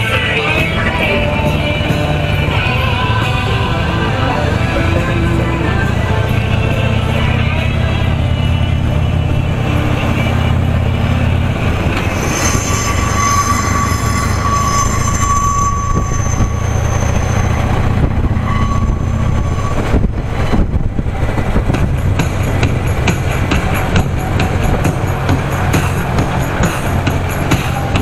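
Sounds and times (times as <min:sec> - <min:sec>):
thin high whine: 0:00.0 - 0:20.8
motorcycle engine drone: 0:00.0 - 0:28.0
rushing wind: 0:00.0 - 0:28.0.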